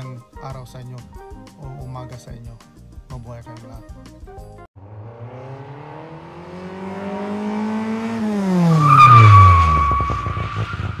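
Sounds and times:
car engine speeding past: 0:04.8 - 0:11.0
tyre screech: 0:08.6 - 0:11.0.

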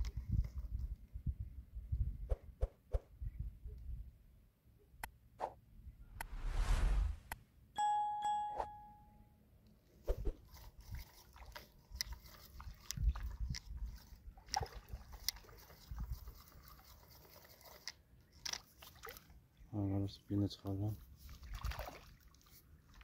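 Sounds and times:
bell-like notification chime: 0:07.8 - 0:09.2
small water sounds: 0:10.4 - 0:23.0.

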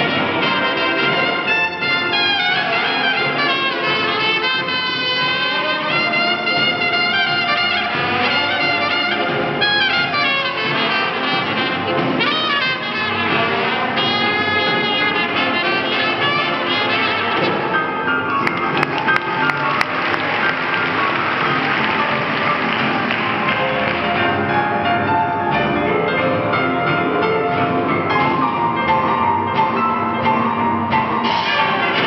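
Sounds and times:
trumpet solo: 0:00.0 - 0:24.6, 0:31.1 - 0:32.0
swing band playing: 0:00.0 - 0:32.0
trombone: 0:00.0 - 0:32.0.

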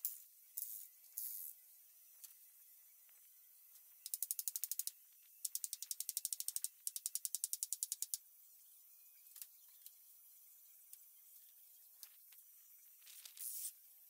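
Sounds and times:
ratchet clicking: 0:04.0 - 0:08.2.

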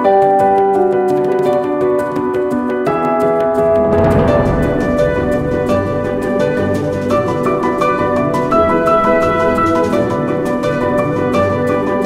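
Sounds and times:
music of sustained chords: 0:03.5 - 0:12.0.

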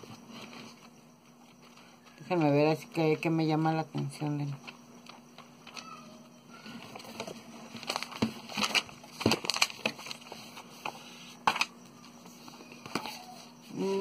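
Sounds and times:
paper and cardboard rustling: 0:06.6 - 0:11.6.

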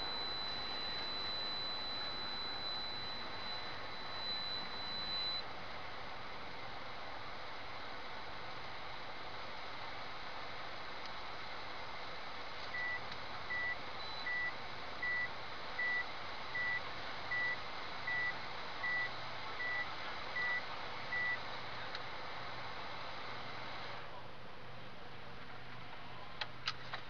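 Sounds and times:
short high electronic beeps: 0:00.0 - 0:05.4.

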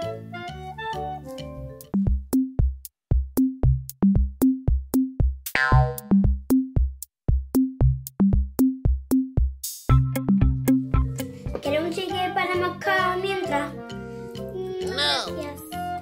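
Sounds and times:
electronic drum beat music: 0:01.8 - 0:12.1.

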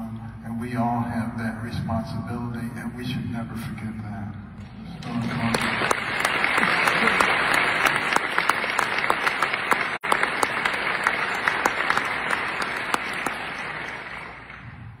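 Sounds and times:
audience applauding: 0:05.0 - 0:14.8
close sharp hand claps: 0:05.4 - 0:14.6.

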